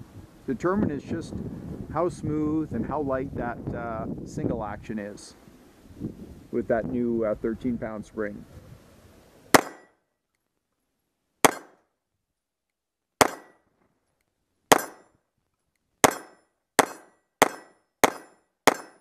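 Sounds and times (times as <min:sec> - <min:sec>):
pistol shots: 0:09.5 - 0:09.9, 0:11.4 - 0:11.8, 0:13.2 - 0:13.6, 0:14.7 - 0:15.0, 0:16.0 - 0:19.0.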